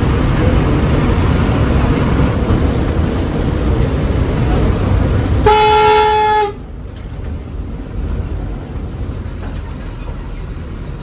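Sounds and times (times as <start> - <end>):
bus engine rumble: 0.0 - 11.0
road noise: 0.0 - 11.0
vehicle horn blaring: 5.4 - 6.6.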